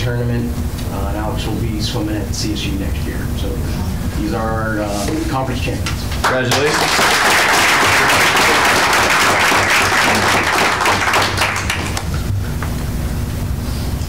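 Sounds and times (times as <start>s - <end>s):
audience clapping: 6.1s - 12.2s.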